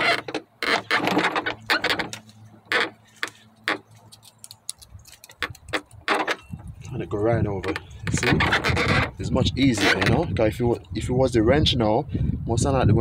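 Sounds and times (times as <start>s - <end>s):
metallic clicks and scrapes: 0.0s - 7.0s, 7.6s - 10.9s.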